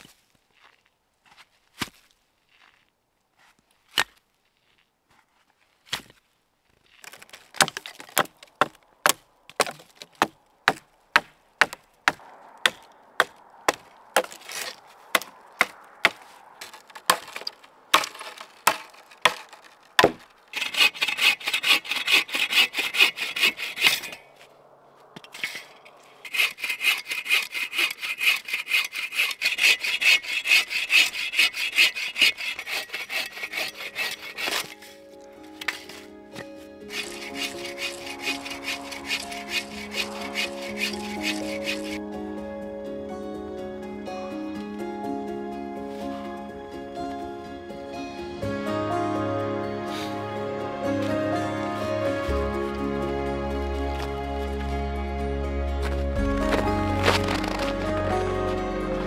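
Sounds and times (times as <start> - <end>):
dry wood snapping: 7.0 - 24.1, 35.5 - 42.0, 55.8 - 58.0
bow saw rasping through log: 7.0 - 24.4, 25.2 - 35.0, 35.6 - 42.0, 55.8 - 59.0.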